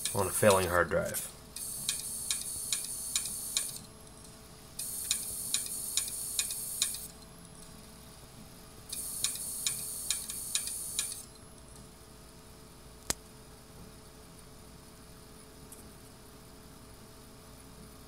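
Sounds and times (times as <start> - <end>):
hard drive head ticking: 0.0 - 0.6, 1.6 - 3.9, 4.8 - 7.2, 8.9 - 11.2.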